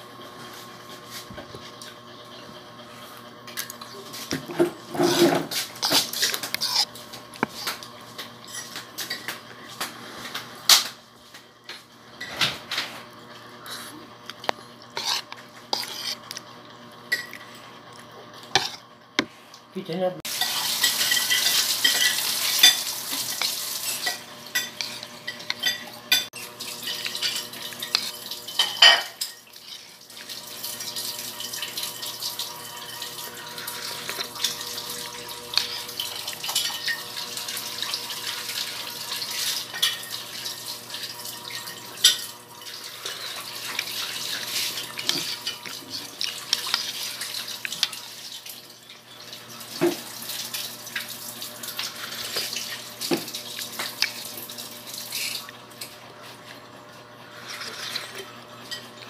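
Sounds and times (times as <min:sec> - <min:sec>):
spoon scraping porridge: 0:04.1 - 0:09.2, 0:13.6 - 0:16.4, 0:18.5 - 0:19.4, 0:20.8 - 0:30.0, 0:35.5 - 0:37.0, 0:42.0 - 0:48.0, 0:57.2 - 0:58.3.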